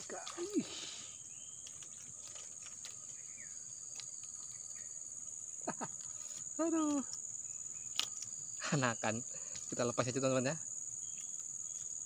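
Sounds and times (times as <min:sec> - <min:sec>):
person exclaiming: 0:00.0 - 0:00.9
insect chorus shrilling: 0:00.0 - 0:12.0.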